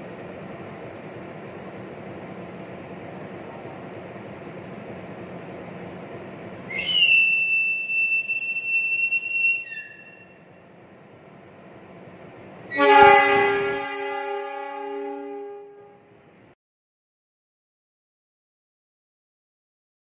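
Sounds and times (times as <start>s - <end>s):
conductor's whistle blast: 6.7s - 10.4s, 12.7s - 15.8s
loud multi-note tone: 12.7s - 16.0s.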